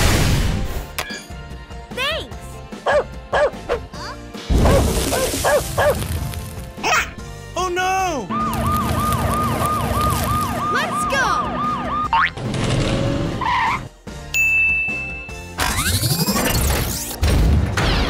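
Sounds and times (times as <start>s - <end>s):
toy siren wailing: 8.3s - 12.2s.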